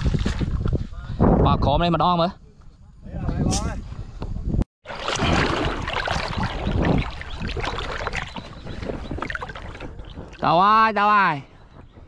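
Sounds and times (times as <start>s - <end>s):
wind noise on microphone: 0.0s - 12.0s.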